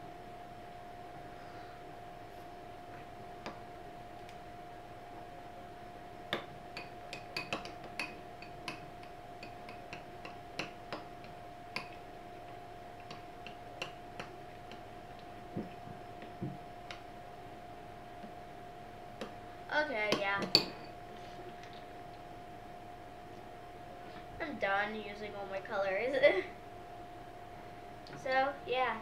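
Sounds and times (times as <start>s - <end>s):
faint steady hum: 0.0s - 29.0s
spoon tapping glass bowl: 6.3s - 11.1s, 11.7s - 12.0s, 20.4s - 21.0s.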